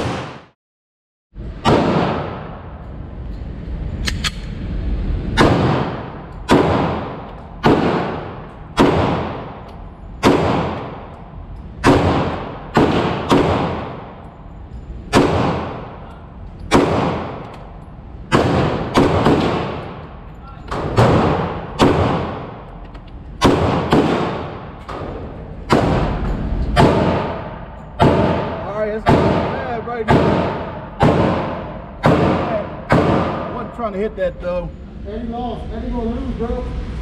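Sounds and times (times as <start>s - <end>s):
echoing gunshots: 0.0s - 0.6s, 1.5s - 2.8s, 5.3s - 11.2s, 11.8s - 14.2s, 15.1s - 16.1s, 16.7s - 22.8s, 23.4s - 33.8s.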